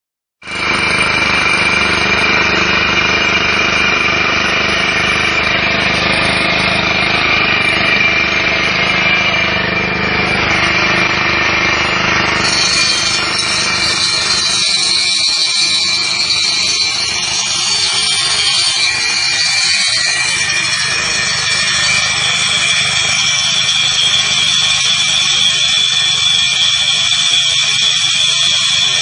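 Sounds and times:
core drill grinding concrete: 0:00.4 - 0:29.0.

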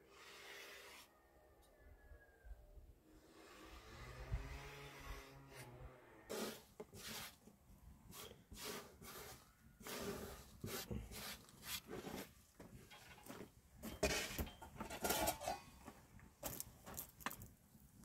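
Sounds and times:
hand sweeping dough across wooden board: 0:06.3 - 0:07.4, 0:08.1 - 0:12.4.

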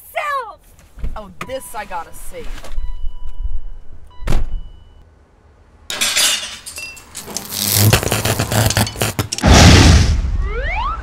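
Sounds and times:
car door shutting: 0:04.2 - 0:04.7
metal clattering and clanking: 0:05.9 - 0:09.5.

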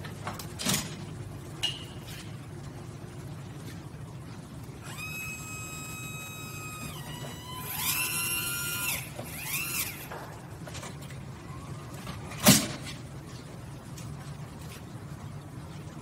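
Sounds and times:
cot lift motor whining: 0:04.8 - 0:10.4.

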